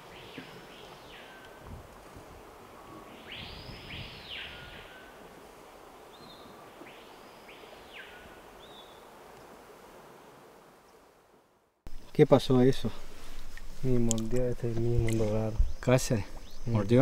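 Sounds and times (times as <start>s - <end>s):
bird calling: 0.0s - 1.6s, 2.8s - 5.2s, 6.1s - 9.1s
steady background hiss: 0.0s - 17.0s.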